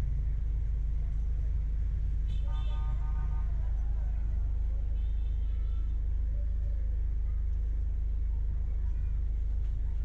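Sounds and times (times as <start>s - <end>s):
car driving on road: 0.0s - 4.9s.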